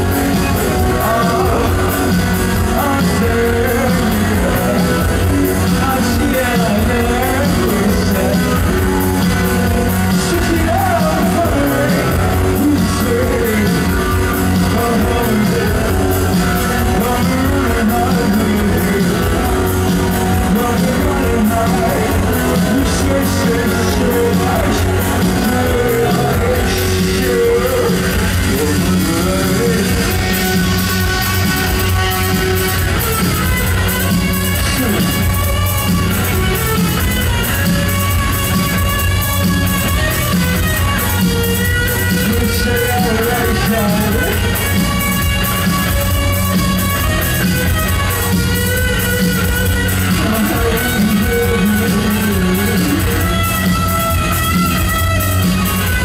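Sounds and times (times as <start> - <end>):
man singing into microphone: 0.0 - 32.9, 34.6 - 35.3, 42.0 - 45.0, 49.6 - 53.8
bass guitar: 0.0 - 56.0
live rock band playing: 0.0 - 56.0.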